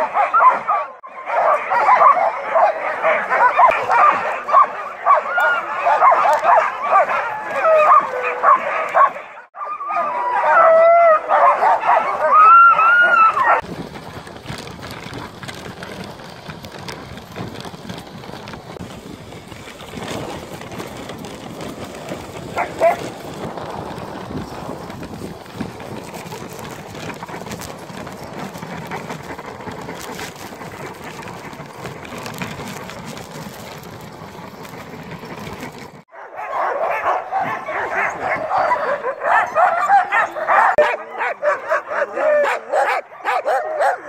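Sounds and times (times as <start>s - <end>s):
dog yip: 0.0s - 13.6s, 36.1s - 44.0s
sled runners and paws on snow: 0.0s - 44.0s.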